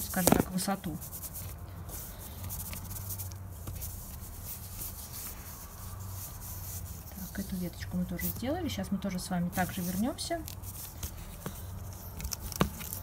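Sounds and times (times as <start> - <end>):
needle and thread through fabric: 0.0 - 8.8
steady low hum: 0.0 - 13.0.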